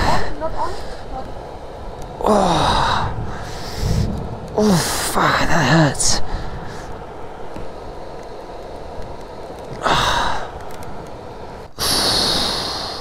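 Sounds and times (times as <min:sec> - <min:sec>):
wind rumble on microphone: 0:00.0 - 0:13.0
person breathing heavily: 0:02.2 - 0:05.2, 0:06.2 - 0:07.1, 0:09.7 - 0:10.8, 0:11.7 - 0:13.0.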